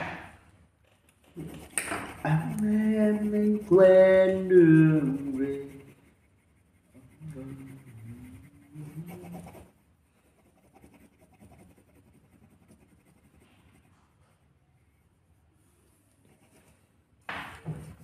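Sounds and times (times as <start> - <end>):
faint scratching: 1.2 - 18.0
man talking: 2.2 - 5.9.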